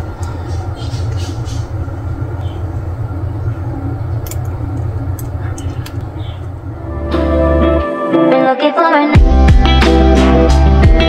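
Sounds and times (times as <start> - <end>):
steady low rumble: 0.0 - 7.8.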